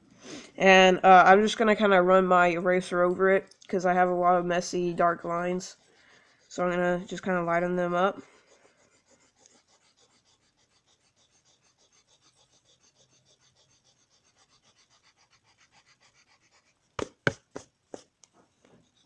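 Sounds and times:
eraser rubbing on paper: 4.0 - 18.1
sharp knocks: 17.0 - 17.7.

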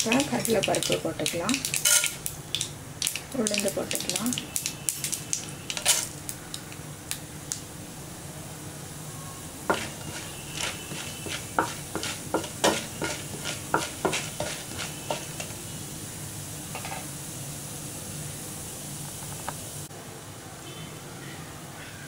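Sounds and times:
seeds sizzling in hot oil: 0.0 - 8.1, 8.8 - 19.9
wooden spatula scraping pan: 9.7 - 15.6.

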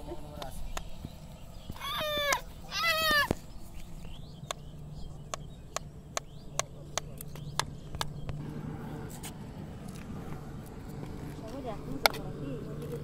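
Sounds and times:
low steady hum: 0.0 - 13.0
toddler squealing cry: 1.8 - 3.3.

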